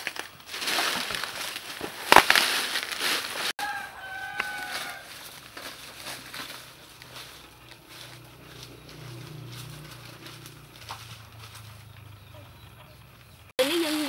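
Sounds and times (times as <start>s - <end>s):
sharp crack: 0.0s - 3.5s
dry leaves rustling and crackling: 0.0s - 12.4s
rooster crowing: 3.6s - 5.4s.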